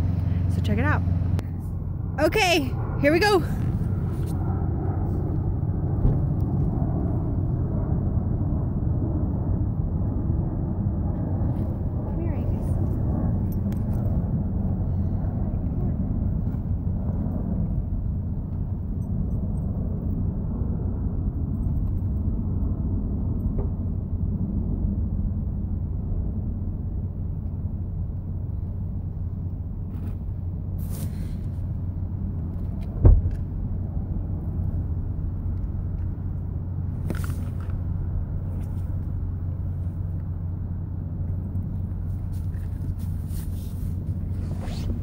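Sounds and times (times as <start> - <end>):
low rumble with hum: 0.0 - 45.0
sharp thump: 6.0 - 6.4, 33.0 - 33.4.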